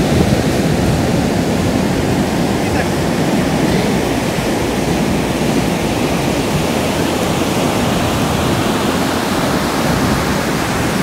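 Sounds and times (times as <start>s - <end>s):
ocean surf breaking: 0.0s - 11.0s.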